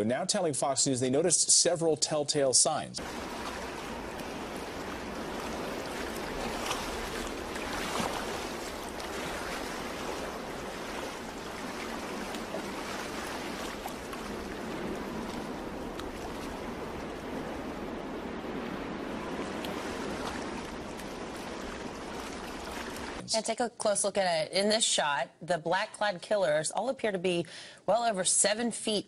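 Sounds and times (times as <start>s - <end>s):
sea waves washing onto beach: 3.0s - 23.2s.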